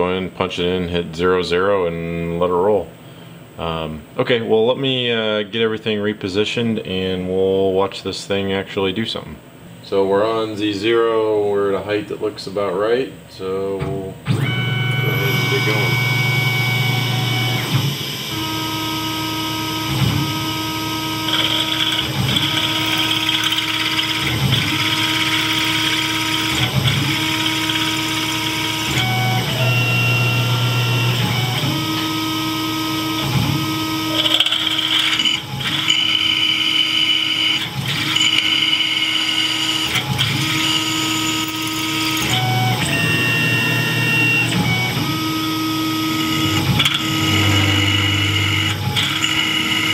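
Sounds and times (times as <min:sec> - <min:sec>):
milling machine motors whining: 0:13.7 - 0:49.9
low hum: 0:42.7 - 0:49.9.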